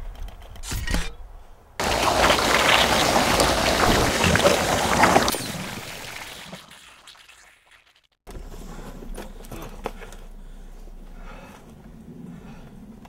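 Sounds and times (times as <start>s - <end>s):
slime blower gushing spray: 1.8s - 7.3s.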